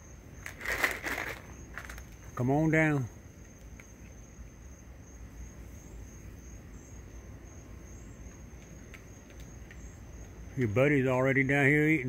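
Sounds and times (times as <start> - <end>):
crickets chirping: 0.0 - 12.0
low background hum: 0.0 - 12.0
faint ticks: 8.2 - 10.4.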